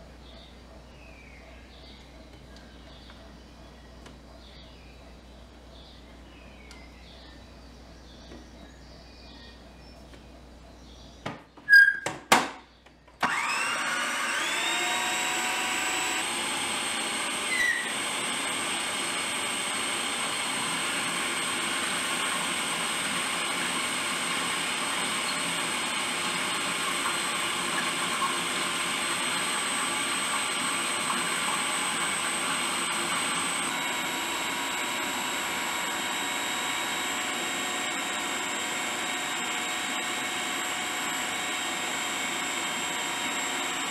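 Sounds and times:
food processor motor whining: 13.2s - 43.9s.

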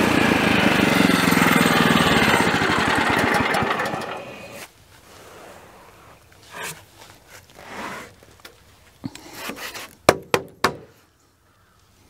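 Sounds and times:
wood scraping on wood: 6.4s - 8.4s
sharp wooden knocks: 10.1s - 10.9s.

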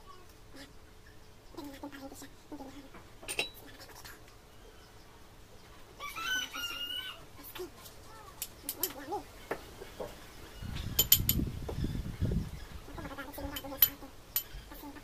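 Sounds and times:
rooster crowing: 6.0s - 7.2s.

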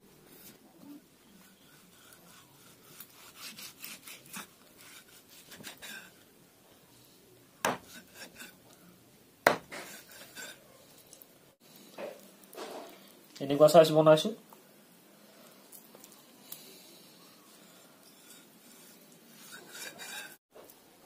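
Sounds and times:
cleaver sawing through meat: 1.3s - 6.2s, 17.5s - 20.4s
cleaver chopping into wood: 7.6s - 8.0s, 9.5s - 9.9s.

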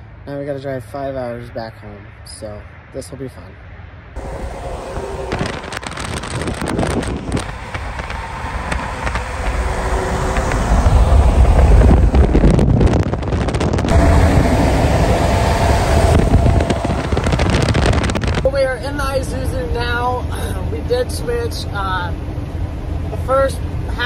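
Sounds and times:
road noise rumble: 0.0s - 24.0s
wind buffeting microphone: 4.2s - 20.4s.

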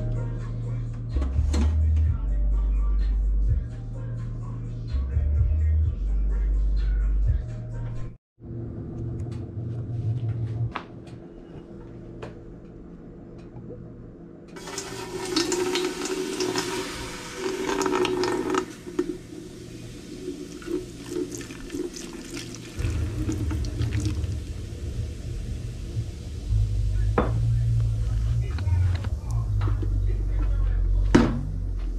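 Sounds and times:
beer pouring into steel pot: 14.6s - 25.6s.

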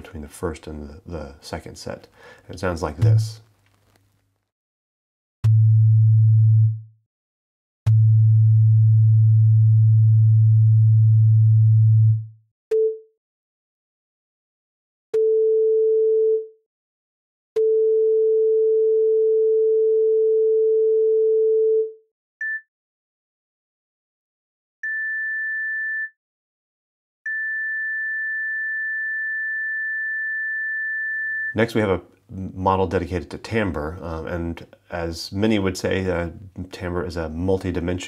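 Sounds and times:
synthesized sine tones: 27.3s - 31.6s.

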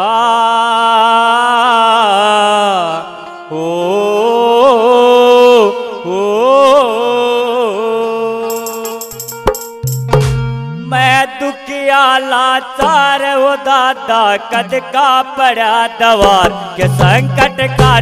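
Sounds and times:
rhythmic percussion and bass: 8.5s - 11.0s, 16.4s - 18.0s.

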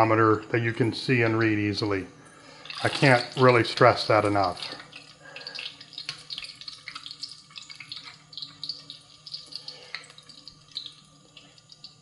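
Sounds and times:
hot oil sizzling and crackling: 2.5s - 12.0s.

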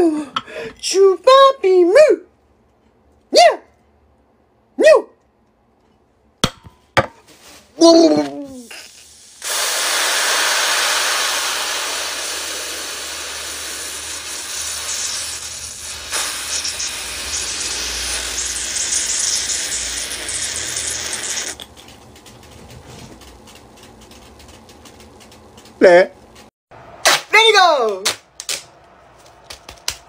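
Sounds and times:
carbonated drink hissing: 8.6s - 21.6s.

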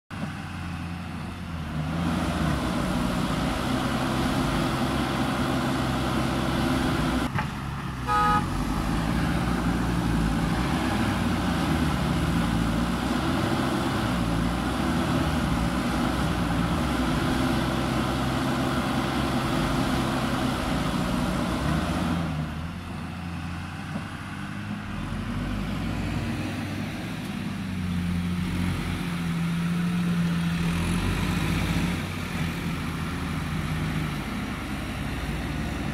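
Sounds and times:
heavy diesel engines under load: 0.1s - 35.9s
vehicle horn toot: 8.0s - 8.6s.

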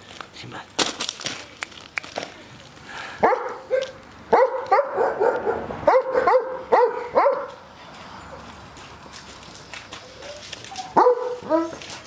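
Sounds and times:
dog barking: 3.2s - 7.6s, 11.0s - 11.8s.

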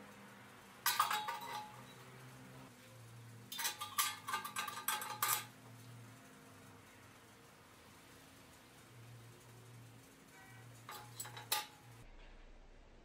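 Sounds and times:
metal grate clinking on grill: 0.8s - 2.3s, 3.4s - 5.9s, 8.7s - 12.0s.

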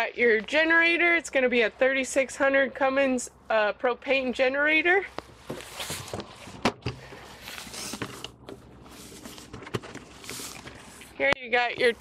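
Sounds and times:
clothing rustle: 5.2s - 11.2s.

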